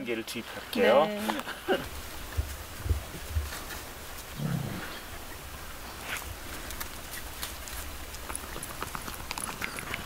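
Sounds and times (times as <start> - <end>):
dog growling: 4.3 - 5.1.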